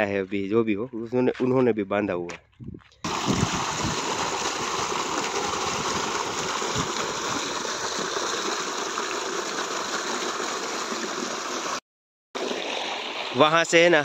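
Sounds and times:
water rushing: 0:03.1 - 0:11.8, 0:12.4 - 0:14.0.

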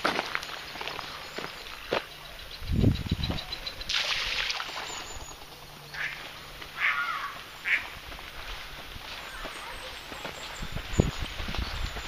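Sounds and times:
ducks quacking: 0:05.9 - 0:08.1.

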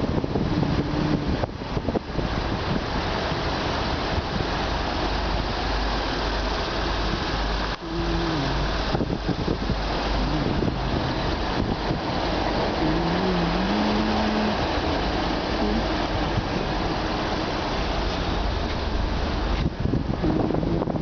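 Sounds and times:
low rumble of traffic: 0:00.0 - 0:21.0
wind buffeting microphone: 0:00.0 - 0:21.0
wavering hums: 0:07.4 - 0:19.3.

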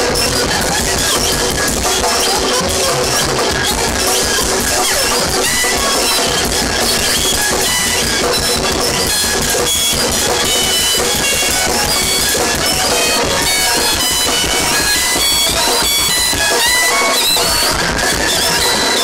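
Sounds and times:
distorted bass guitar: 0:00.0 - 0:19.0
pounding drums: 0:00.0 - 0:19.0.

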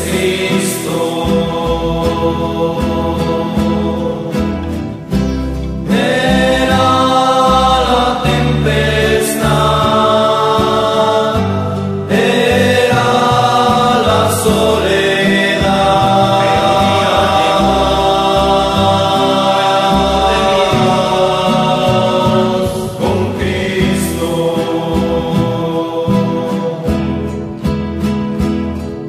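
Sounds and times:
voices singing in harmony: 0:00.0 - 0:28.4
string accompaniment: 0:00.0 - 0:29.0.

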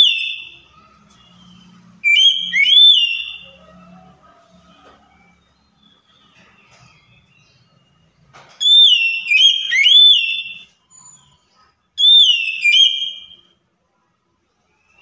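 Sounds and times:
bird singing whistled notes: 0:00.0 - 0:03.5, 0:05.2 - 0:11.4, 0:12.0 - 0:13.5.

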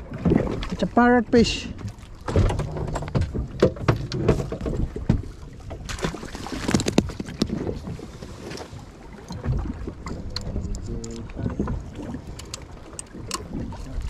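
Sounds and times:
low rumble of wind and water: 0:00.0 - 0:14.0
fishing rods knocking and clicking: 0:09.3 - 0:13.6.

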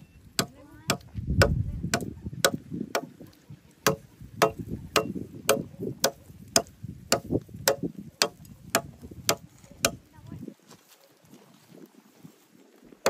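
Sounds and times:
machete chopping wood: 0:00.4 - 0:03.2, 0:03.8 - 0:10.0.

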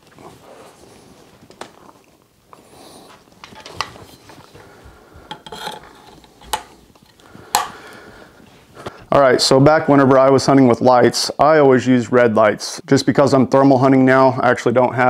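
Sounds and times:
rubbing and rustling: 0:00.0 - 0:07.5.

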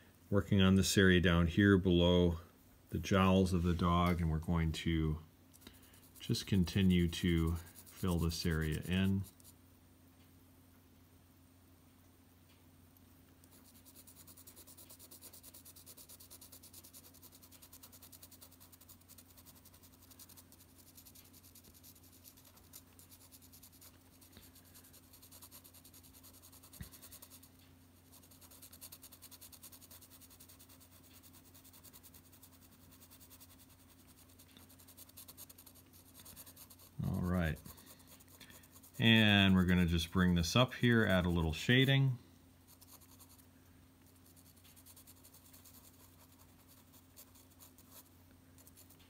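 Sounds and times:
steady low hum: 0:00.0 - 0:49.0
pencil scratching on paper: 0:06.0 - 0:09.6, 0:13.5 - 0:40.0, 0:42.7 - 0:43.4, 0:44.1 - 0:49.0.

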